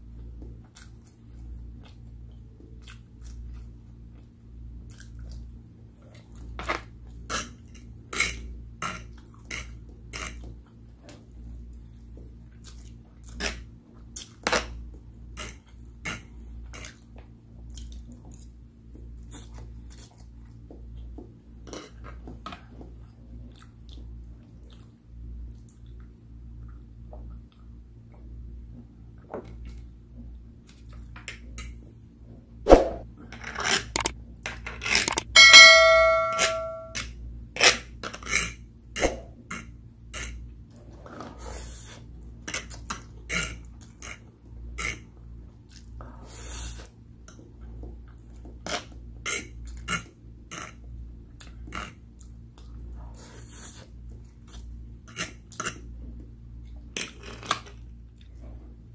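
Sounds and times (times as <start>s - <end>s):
chewing noodles: 0.6s - 6.5s, 11.8s - 14.5s, 16.7s - 18.5s, 23.1s - 26.8s
steady low hum: 35.0s - 37.0s
sharp ringing clink: 35.1s - 37.0s.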